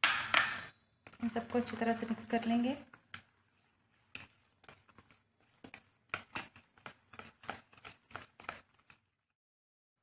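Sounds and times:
utensil stirring batter in bowl: 0.4 - 9.4.

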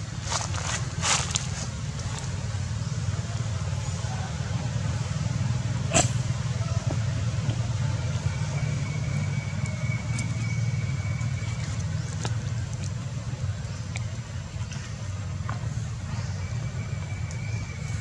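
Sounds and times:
low engine hum: 0.0 - 18.0.

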